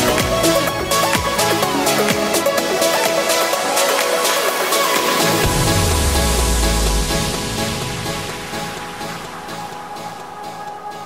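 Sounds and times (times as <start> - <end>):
electronic music: 0.0 - 11.0
deep bass note: 5.4 - 9.0.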